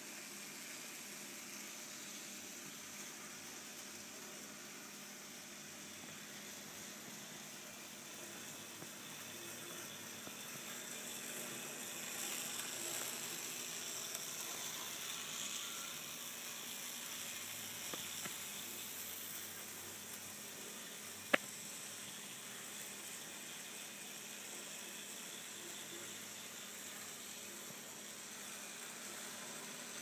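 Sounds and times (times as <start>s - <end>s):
model train hissing on track: 0.0s - 30.0s.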